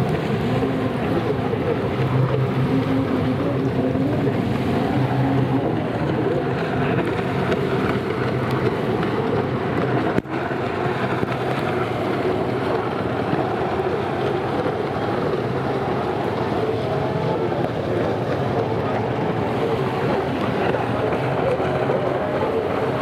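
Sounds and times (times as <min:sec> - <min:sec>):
jet ski engines droning: 0:00.0 - 0:23.0.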